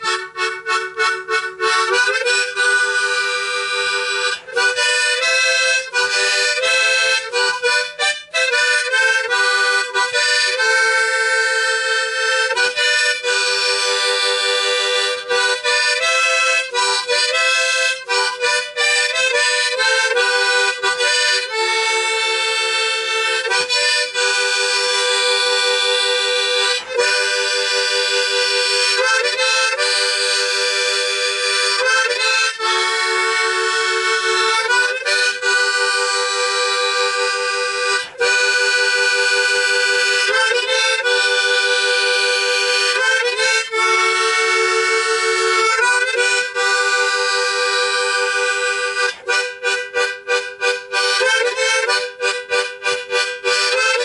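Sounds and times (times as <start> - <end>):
harmonica melody: 0.0 - 54.0.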